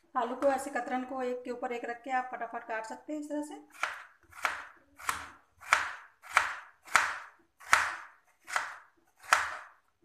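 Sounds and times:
knife chopping on cutting board: 0:03.7 - 0:09.8.

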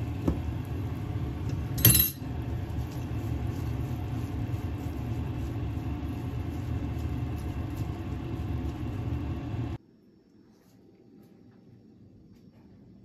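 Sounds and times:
low machine rumble: 0:00.0 - 0:09.8
wooden spoon stirring in a pot: 0:00.0 - 0:09.8.

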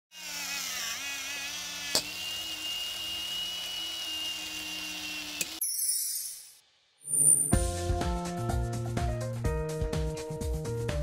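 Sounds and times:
small electric motor whirring: 0:00.1 - 0:07.5.

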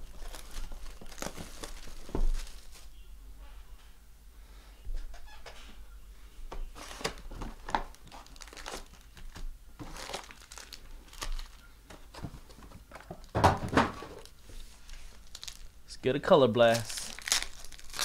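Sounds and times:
foil packs crinkling: 0:00.0 - 0:02.9, 0:06.8 - 0:15.8, 0:16.5 - 0:18.0.

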